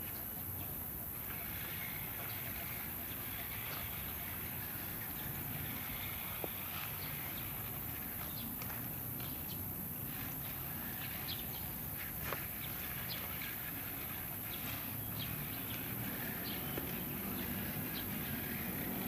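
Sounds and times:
low background noise: 0.0s - 19.0s
footsteps on rubber track: 1.1s - 19.0s.

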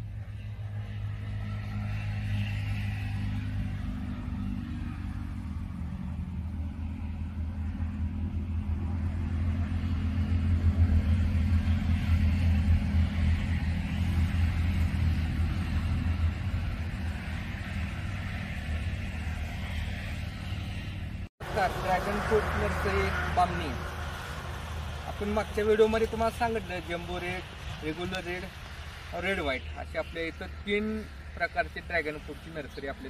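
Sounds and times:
low rumble with deep hum: 3.7s - 29.0s.

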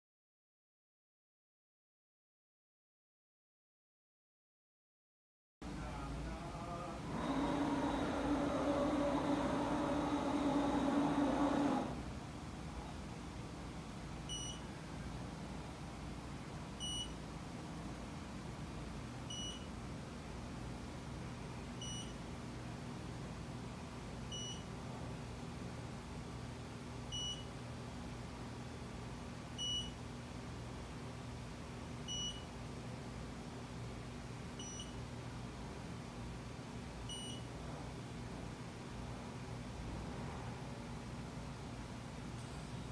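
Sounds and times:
steady low hum: 5.6s - 42.9s
short electronic beeps: 14.3s - 14.6s, 16.8s - 17.1s, 19.3s - 19.7s, 21.8s - 22.2s, 24.3s - 24.6s, 27.2s - 27.4s, 29.6s - 30.0s, 32.1s - 32.4s, 34.6s - 35.0s, 37.1s - 37.4s.

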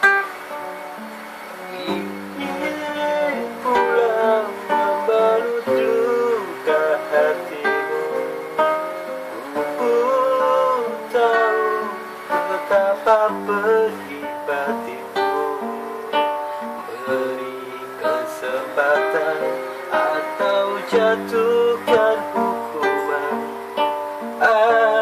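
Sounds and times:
acoustic guitar strumming: 0.0s - 25.0s
man singing: 1.6s - 25.0s.

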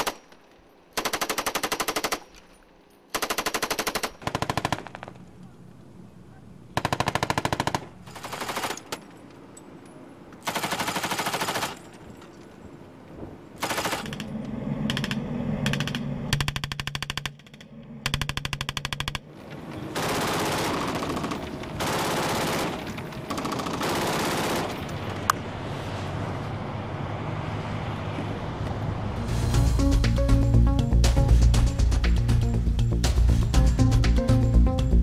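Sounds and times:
machine gun bursts: 6.8s - 9.0s, 10.4s - 11.9s, 13.6s - 14.3s, 19.9s - 25.2s
boat engine humming: 9.2s - 35.0s.

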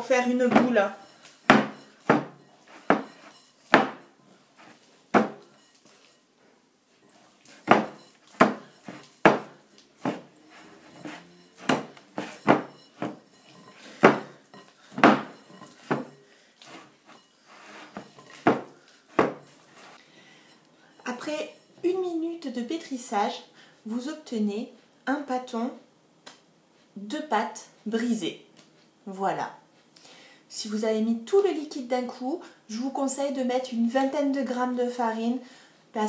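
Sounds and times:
glass bowl knocking and clinking: 1.5s - 4.1s, 5.2s - 5.8s, 7.6s - 16.2s, 17.9s - 19.5s.

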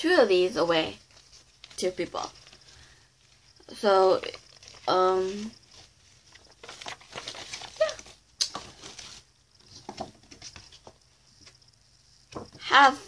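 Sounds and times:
paper rustling and tapping: 4.3s - 11.6s, 12.3s - 12.6s.

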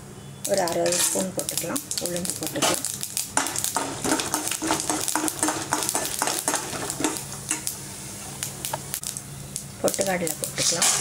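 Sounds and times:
seeds sizzling in hot oil: 0.3s - 11.0s
metal spoon stirring in pan: 0.5s - 9.2s, 9.9s - 11.0s.

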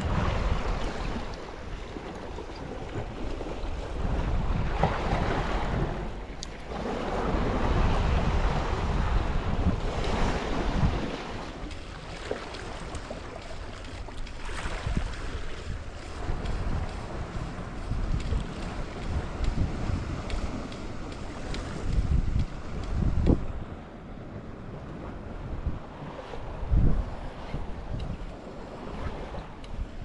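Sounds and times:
sea waves washing against rocks: 0.0s - 23.7s
wind buffeting microphone: 0.0s - 30.0s.

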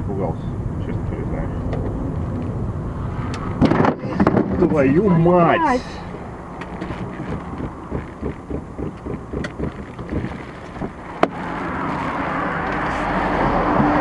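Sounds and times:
road and engine noise: 0.0s - 14.0s
soft low thumps: 7.0s - 11.0s.

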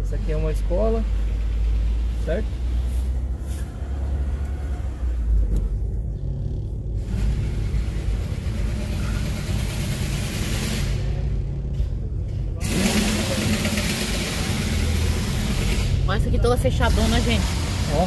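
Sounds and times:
car engine and road rumble: 0.0s - 18.0s.

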